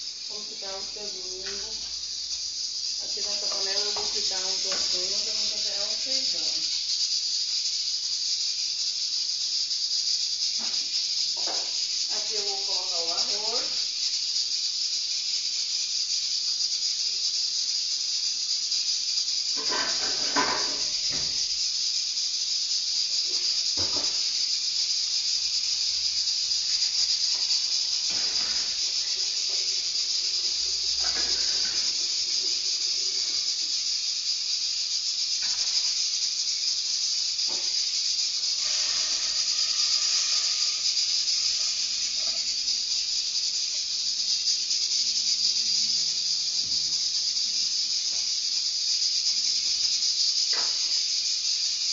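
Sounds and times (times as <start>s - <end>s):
gas stove hissing: 0.0s - 51.9s
pots clattering: 19.6s - 21.4s, 27.4s - 33.3s.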